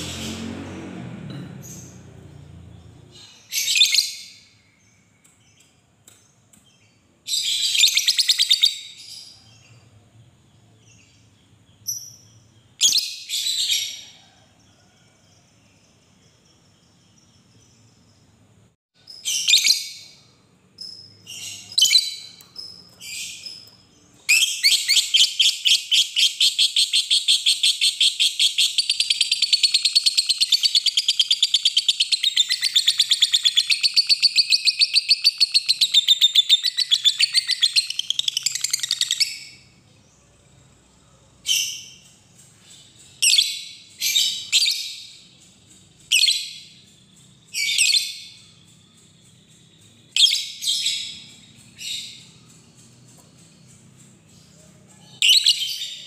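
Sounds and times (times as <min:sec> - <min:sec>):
bird shrill chirps: 0:19.1 - 0:39.7, 0:41.4 - 0:53.6, 0:54.4 - 0:56.0.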